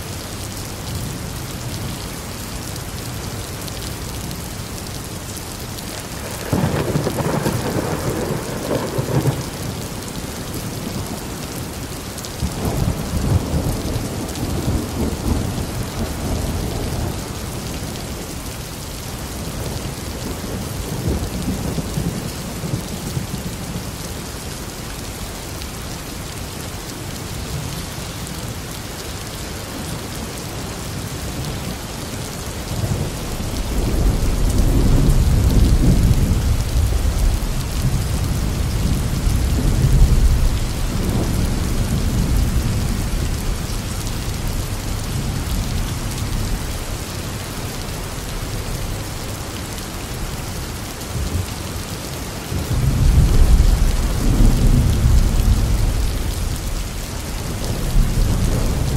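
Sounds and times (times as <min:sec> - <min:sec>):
heavy rain: 0:00.0 - 0:58.9
rolling thunder: 0:06.1 - 0:11.3, 0:32.7 - 0:46.8.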